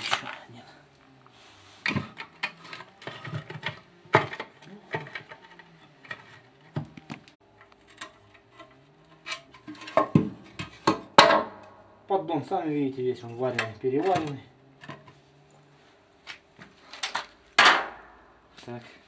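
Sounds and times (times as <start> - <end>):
metal clanks and scrapes: 1.8 - 6.8, 7.6 - 11.4
metal knocks on concrete: 9.8 - 11.6.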